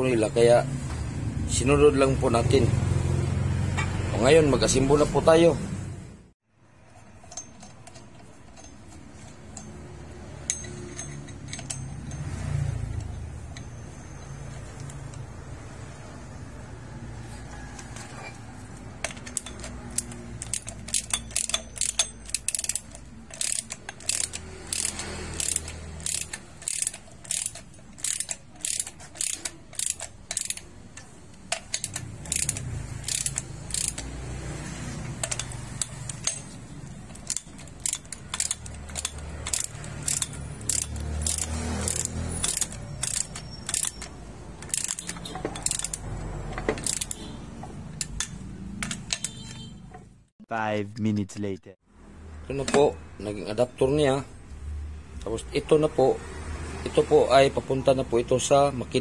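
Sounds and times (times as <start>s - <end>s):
ratchet wrench clicking: 7.0s - 15.3s, 18.8s - 49.7s.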